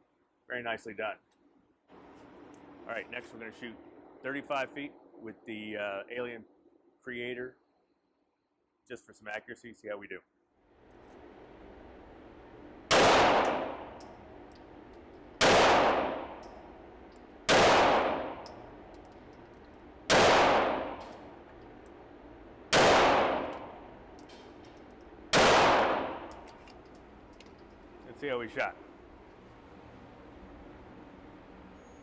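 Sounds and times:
pistol shots echoing indoors: 11.4s - 26.5s.

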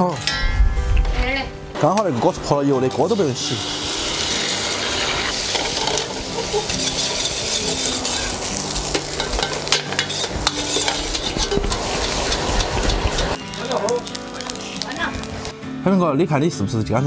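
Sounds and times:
egg sizzling in hot oil: 2.5s - 15.6s
metal ladle scraping wok: 3.0s - 13.4s.

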